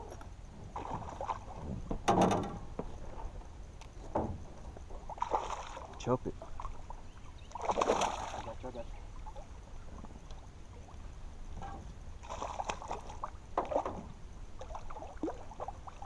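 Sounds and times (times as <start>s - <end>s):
low steady rumble: 0.0s - 16.0s
fish splashing at water surface: 7.5s - 8.6s, 12.2s - 14.0s.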